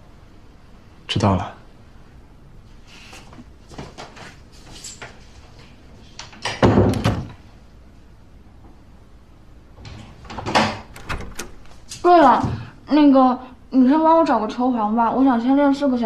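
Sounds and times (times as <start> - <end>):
door shutting with a knock: 6.5 - 7.4.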